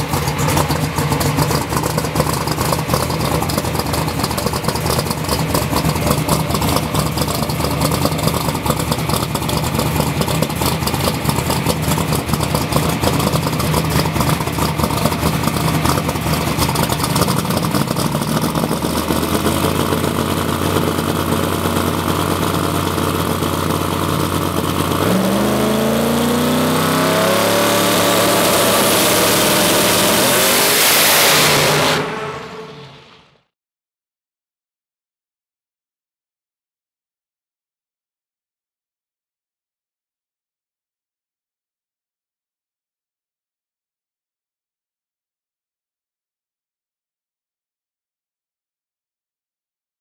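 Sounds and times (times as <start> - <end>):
drag car engine idling: 0.0 - 30.2
engine revving: 0.0 - 33.4.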